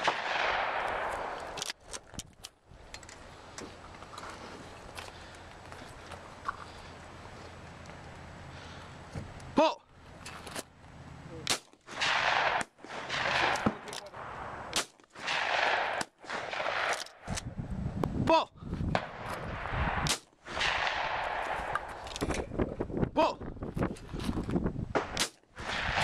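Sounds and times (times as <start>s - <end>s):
shotgun shots: 0.0s - 1.6s, 11.4s - 17.4s, 19.0s - 21.9s, 24.9s - 26.0s
background noise: 0.0s - 26.0s.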